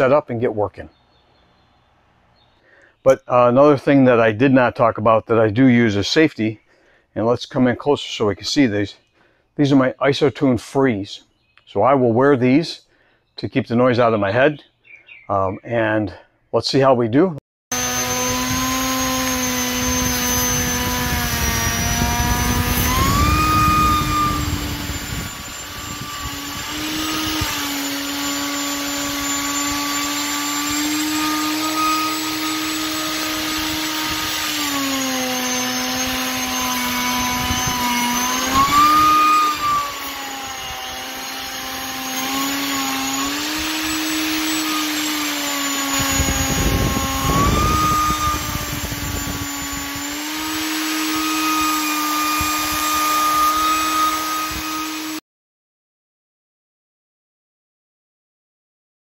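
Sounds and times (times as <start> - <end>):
hiss of wood cutting: 17.7 - 55.2
router motor whine: 17.7 - 55.2.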